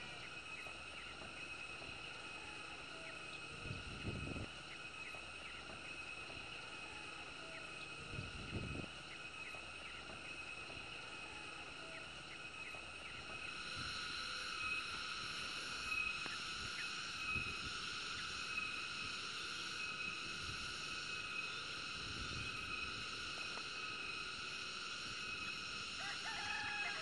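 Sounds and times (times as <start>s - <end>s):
shrill insect chorus: 0.0s - 27.0s
wind bumps on microphone: 3.6s - 4.5s, 8.1s - 8.9s.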